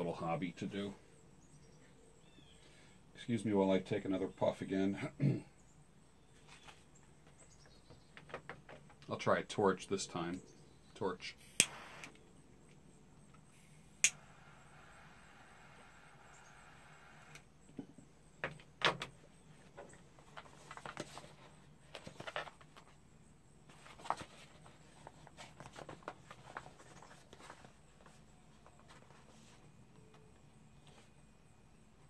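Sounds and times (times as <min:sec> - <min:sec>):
lighter flame hissing: 0:11.4 - 0:12.2
torch lighter clicking: 0:11.5 - 0:12.2, 0:14.0 - 0:14.2.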